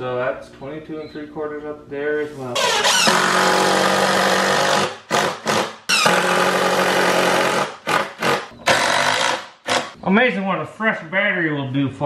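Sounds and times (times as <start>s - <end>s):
impact driver trigger bursts: 2.6s - 10.0s
impact driver hammering: 2.8s - 10.0s.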